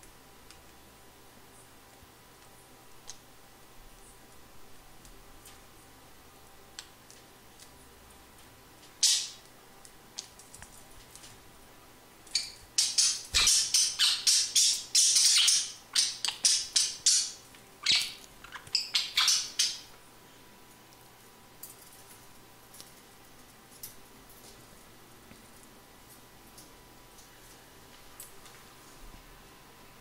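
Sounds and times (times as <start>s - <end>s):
budgerigars squawking: 12.4s - 19.9s.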